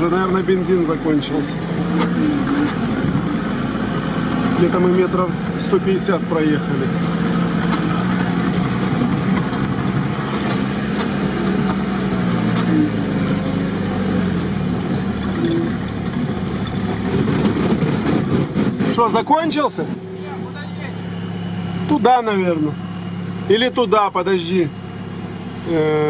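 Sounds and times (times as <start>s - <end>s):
vehicle engine running: 0.0s - 26.0s.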